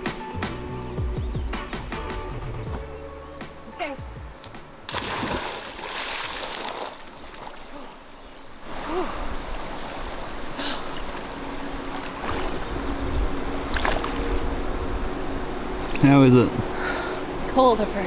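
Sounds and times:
person jumping into water: 0:04.9 - 0:11.3, 0:13.7 - 0:14.3
water splashing from swimming: 0:04.9 - 0:12.7, 0:13.7 - 0:14.4
water churning: 0:04.9 - 0:17.3.

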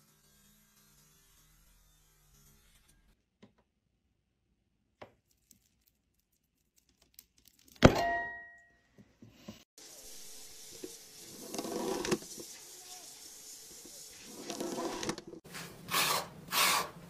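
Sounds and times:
steady hiss: 0:09.8 - 0:14.9.

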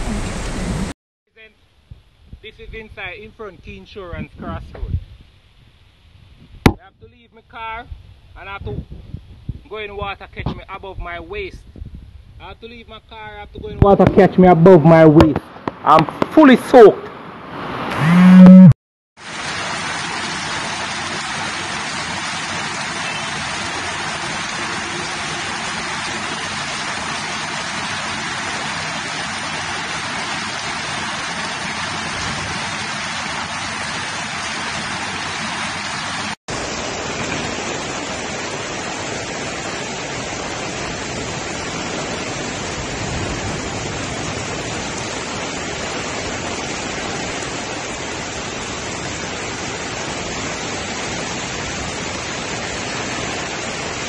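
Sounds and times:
heavy rain hissing: 0:00.0 - 0:01.0, 0:17.6 - 0:54.0
rushing floodwater: 0:13.6 - 0:18.2, 0:19.2 - 0:54.0.

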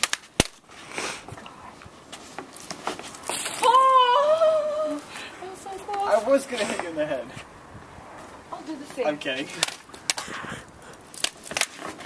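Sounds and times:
high-pitched wordless yell: 0:03.6 - 0:06.2
plastic toy lightsabers clacking: 0:11.0 - 0:11.9.

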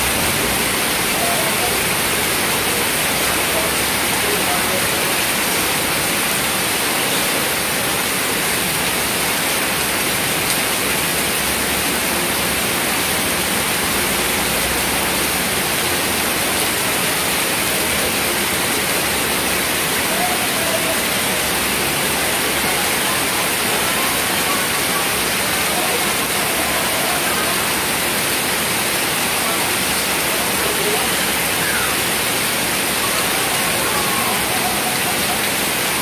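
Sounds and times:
heavy rain on pavement: 0:00.0 - 0:36.0.

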